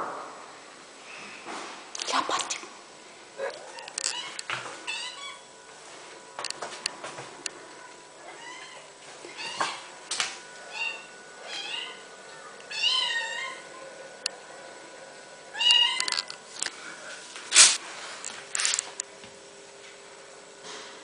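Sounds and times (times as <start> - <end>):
brief scuffle: 17.5 - 17.8.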